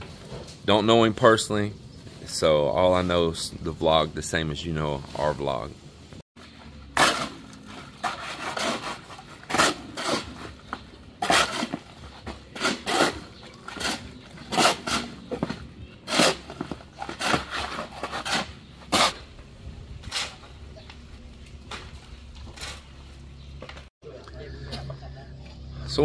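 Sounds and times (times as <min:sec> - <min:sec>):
shovels scraping wet concrete: 0:06.8 - 0:19.3, 0:20.0 - 0:20.6.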